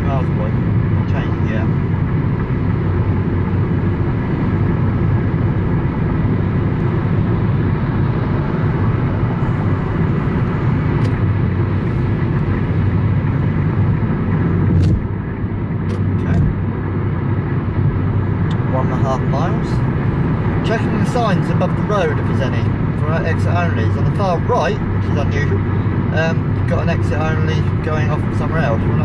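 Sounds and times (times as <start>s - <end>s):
car tyres and engine rumble: 0.0s - 29.0s.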